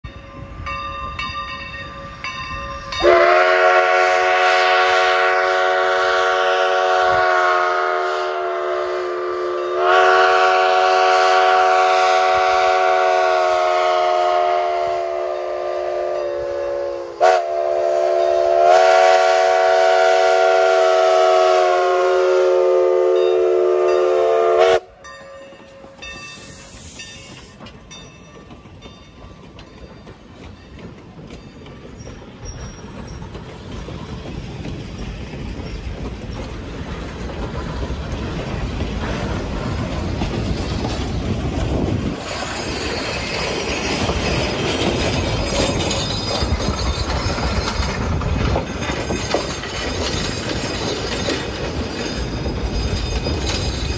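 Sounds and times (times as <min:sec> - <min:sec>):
train cars rolling past: 0:00.0 - 0:53.9
steam locomotive whistle blasts: 0:03.0 - 0:25.0, 0:25.8 - 0:27.5.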